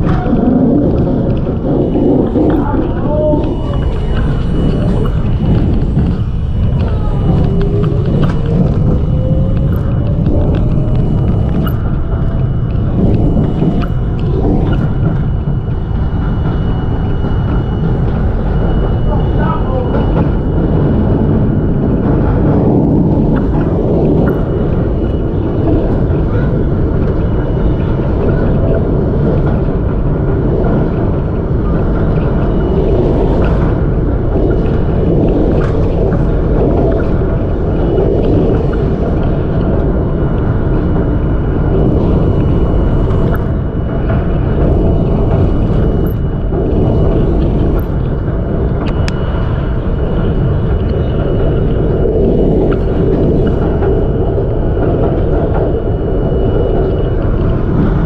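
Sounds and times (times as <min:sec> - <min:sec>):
scattered clicks: 0:00.0 - 0:55.9
subway train rumbling over bridge: 0:00.0 - 0:58.0
faint high tone: 0:01.9 - 0:14.4.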